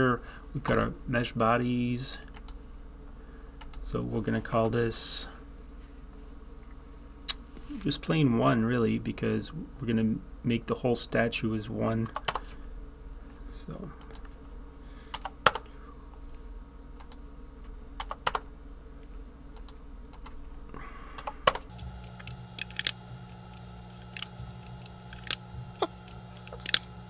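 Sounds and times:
steady low hum: 0.0s - 27.0s
keyboard keystrokes: 21.2s - 26.9s.

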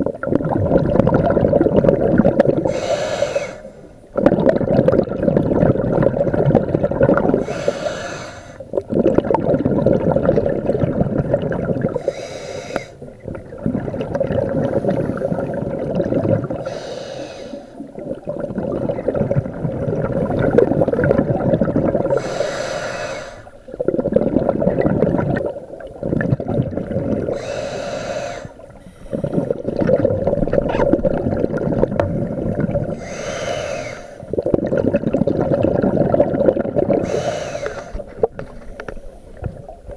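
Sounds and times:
exhaled bubbles rushing: 0.0s - 39.9s
regulator hissing inhale: 2.7s - 3.9s, 7.4s - 8.7s, 12.0s - 13.0s, 16.6s - 17.9s, 22.1s - 23.6s, 27.3s - 29.6s, 32.9s - 34.3s, 37.0s - 39.4s.

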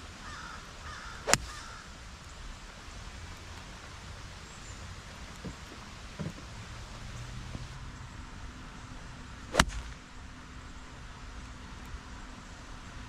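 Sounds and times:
golf club striking ball: 1.2s - 1.7s, 9.5s - 10.2s.

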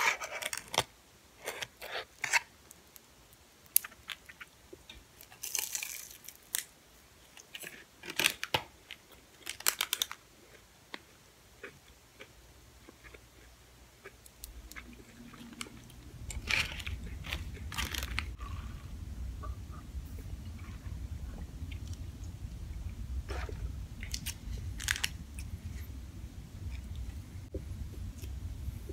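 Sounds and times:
crunchy chewing of fried food: 5.2s - 6.7s, 8.9s - 18.8s
low rumble: 14.5s - 28.9s.

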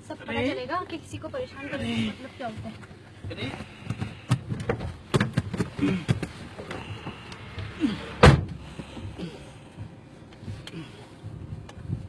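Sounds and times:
car door banging: 4.3s - 6.8s, 8.1s - 8.7s.

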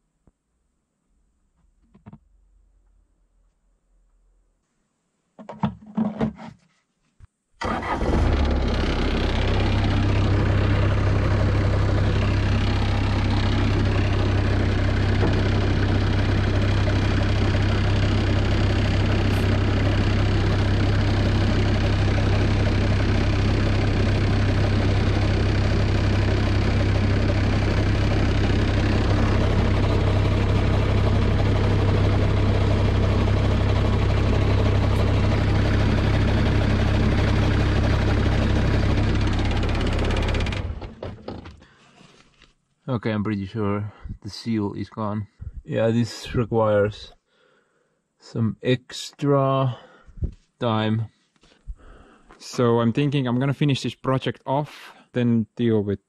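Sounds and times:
diesel engine starting and idling: 7.6s - 41.7s
knocks and rattles: 39.3s - 41.7s.

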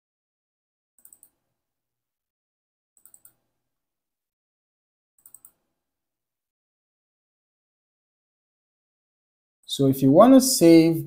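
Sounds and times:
computer mouse clicks: 1.0s - 1.4s, 3.0s - 3.4s, 5.2s - 5.7s.

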